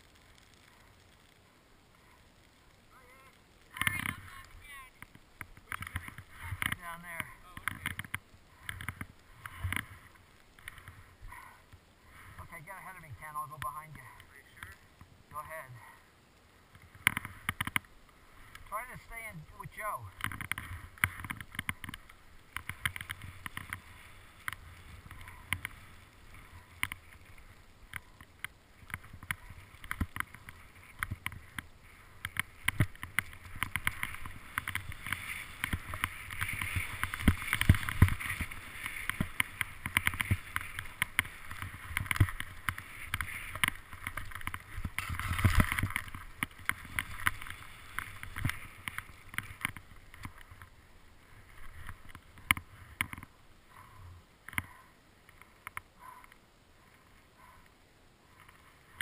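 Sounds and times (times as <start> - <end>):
small knocks and clicks: 5.0 - 11.0, 16.7 - 18.7, 20.2 - 50.7, 51.6 - 53.3, 54.4 - 56.4
skis swishing through snow: 22.0 - 28.2, 28.8 - 53.0.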